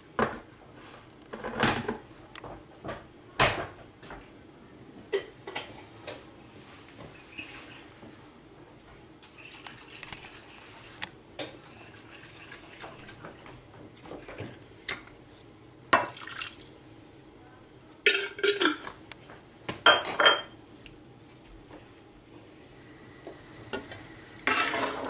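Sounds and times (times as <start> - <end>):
cookware clinking and clattering: 18.0 - 18.9, 19.8 - 20.6.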